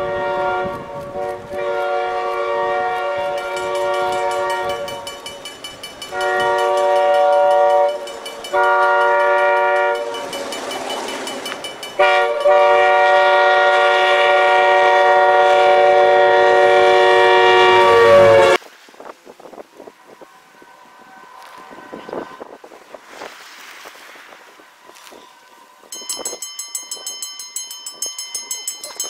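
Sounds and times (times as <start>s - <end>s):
train air horn blasts: 0.0s - 5.4s, 6.1s - 10.4s, 12.0s - 18.6s
train plowing through snow: 0.0s - 29.0s.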